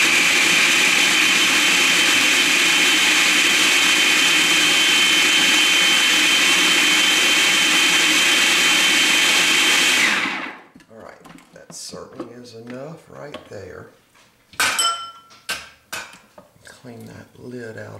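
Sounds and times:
food processor grinding: 0:00.0 - 0:10.7.

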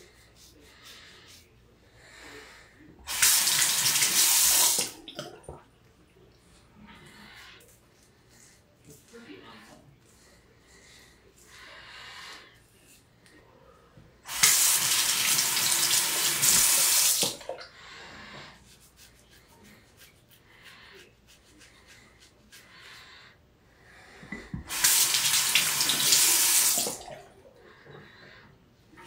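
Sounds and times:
sink tap running: 0:03.1 - 0:05.0, 0:14.3 - 0:17.4, 0:24.5 - 0:27.1
razor scraping stubble: 0:18.6 - 0:23.1.

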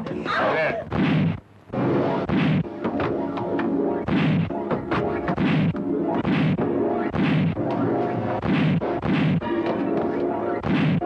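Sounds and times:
punch sound effects: 0:00.9 - 0:01.4, 0:02.2 - 0:02.7, 0:04.0 - 0:04.5, 0:05.3 - 0:07.6, 0:08.4 - 0:09.4, 0:10.6 - 0:11.0.

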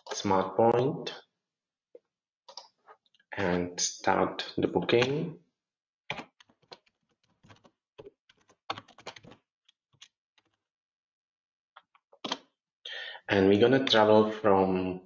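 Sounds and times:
computer keyboard typing: 0:06.1 - 0:09.4.

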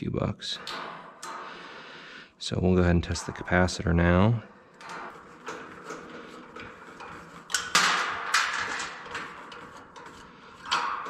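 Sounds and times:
screwdriver clicks and metal scrapes: 0:04.7 - 0:11.0.

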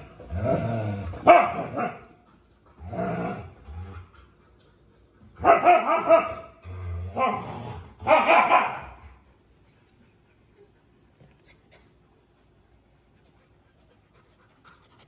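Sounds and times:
puppies barking: 0:05.4 - 0:06.6, 0:08.0 - 0:09.0.

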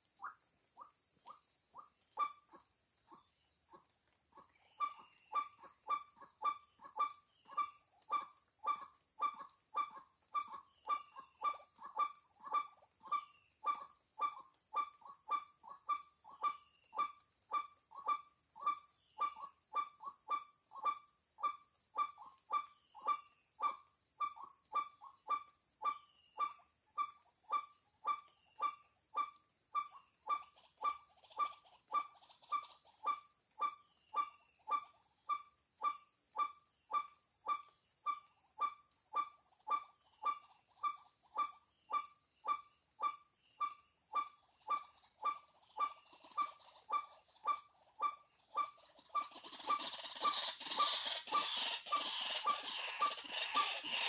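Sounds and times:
bird hoarse repeated call: 0:22.0 - 0:54.0.

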